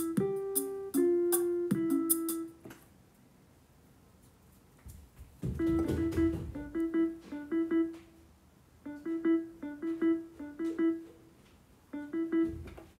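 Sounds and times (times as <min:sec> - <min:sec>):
repeated pitched notes: 0:00.0 - 0:02.6, 0:05.6 - 0:08.2, 0:08.8 - 0:11.3, 0:11.9 - 0:12.8.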